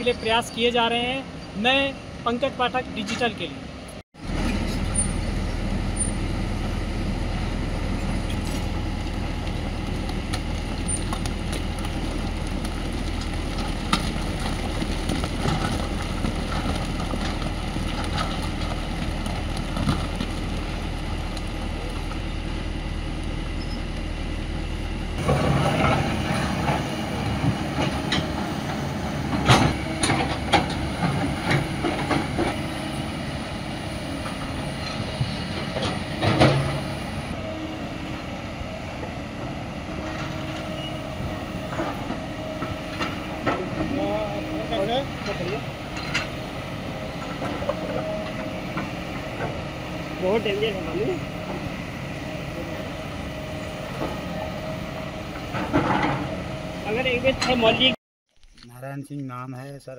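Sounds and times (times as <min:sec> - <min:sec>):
excavator diesel engines droning: 0:00.0 - 0:58.0
rocks knocking and clattering: 0:09.0 - 0:22.2.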